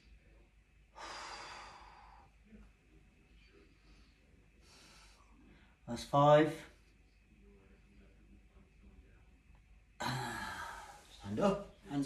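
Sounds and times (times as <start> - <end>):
man breathing out: 1.0 - 2.3.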